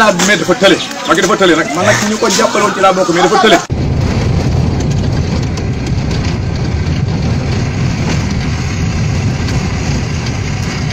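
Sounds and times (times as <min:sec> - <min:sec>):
vehicle engine and road rumble: 0:03.6 - 0:10.9
knocks and rattles: 0:03.7 - 0:10.9.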